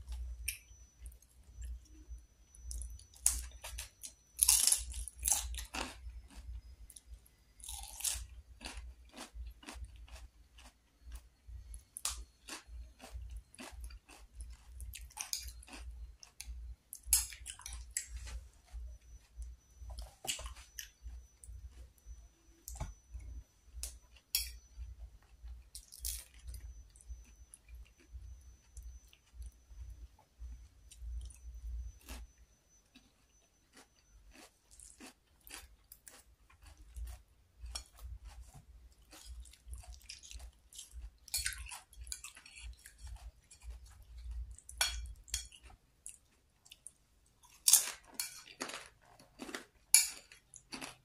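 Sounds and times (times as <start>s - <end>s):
crunching bites and chewing: 2.5s - 23.0s, 32.0s - 51.0s.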